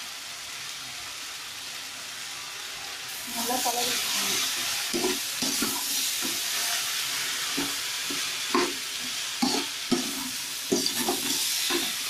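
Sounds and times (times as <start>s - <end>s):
vegetables sizzling in oil: 0.0s - 12.0s
spatula scraping pan: 3.9s - 12.0s.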